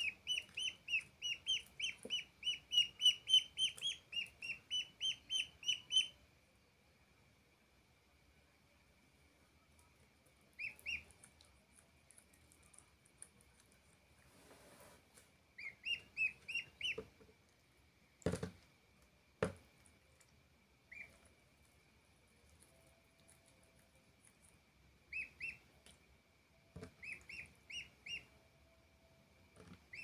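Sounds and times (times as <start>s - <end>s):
duckling peeping: 0.0s - 6.2s, 10.5s - 11.4s, 15.6s - 17.1s, 20.9s - 21.3s, 25.1s - 25.8s, 26.7s - 28.4s, 29.7s - 30.0s.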